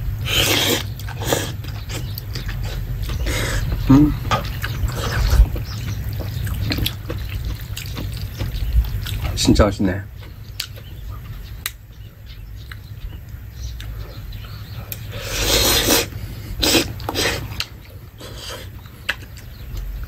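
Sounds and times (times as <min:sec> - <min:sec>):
person slurping noodles: 0:00.2 - 0:01.6, 0:15.2 - 0:17.6
chewing: 0:00.3 - 0:09.5, 0:10.1 - 0:20.0.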